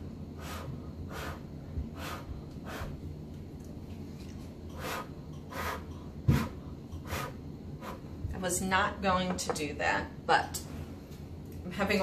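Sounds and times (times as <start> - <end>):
person blowing airy puffs: 0.4 - 3.0, 4.7 - 8.1.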